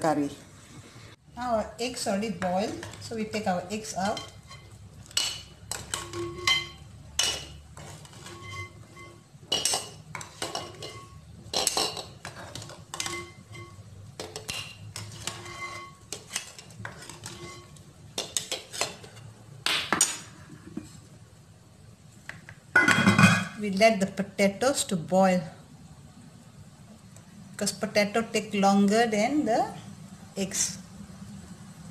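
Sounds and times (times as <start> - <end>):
metal spoon clinking against pot: 3.9 - 19.1.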